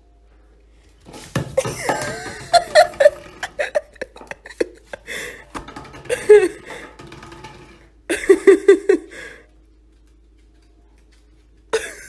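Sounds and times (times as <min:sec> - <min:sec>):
person laughing: 0:01.6 - 0:05.4, 0:06.1 - 0:06.8, 0:08.1 - 0:09.4, 0:11.7 - 0:12.0.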